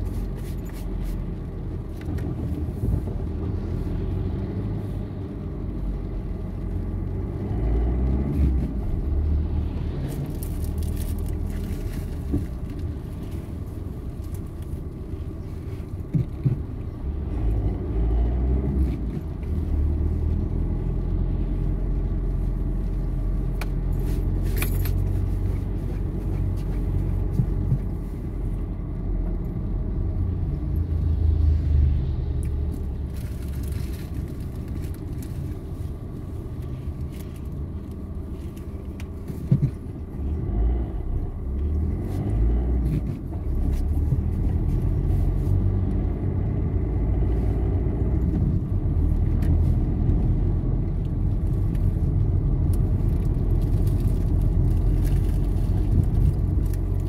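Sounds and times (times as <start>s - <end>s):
car engine and tyres rumbling: 0.0s - 57.0s.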